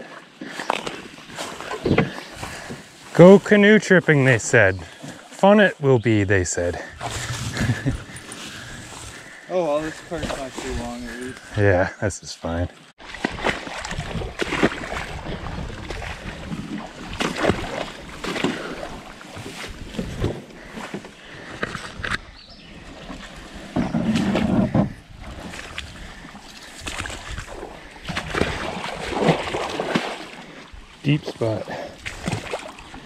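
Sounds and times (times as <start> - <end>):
hull brushing through reeds: 6.9 - 11.6
splashing steps in water: 13.0 - 20.3, 25.2 - 30.6, 32.0 - 33.0.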